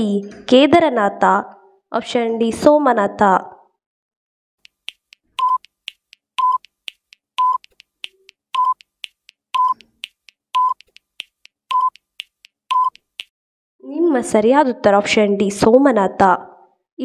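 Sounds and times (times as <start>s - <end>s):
fast clock-like ticking: 4.6s - 13.3s
short beep: 5.4s - 5.6s, 6.4s - 6.6s, 7.4s - 7.6s.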